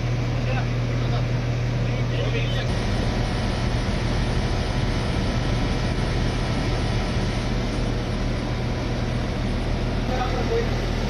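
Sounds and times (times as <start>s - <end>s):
low hum: 0.0s - 11.0s
aircraft engine rushing: 2.6s - 11.0s.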